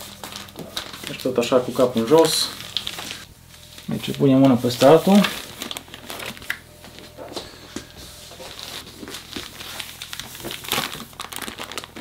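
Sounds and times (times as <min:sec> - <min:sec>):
plastic bags crinkling and rustling: 0:00.0 - 0:12.0.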